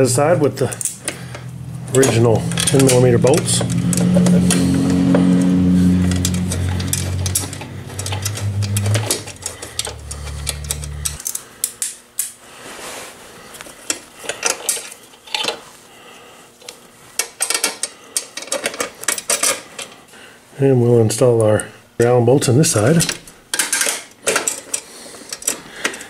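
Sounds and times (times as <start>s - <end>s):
metal tools and bolts clinking: 1.9s - 4.4s.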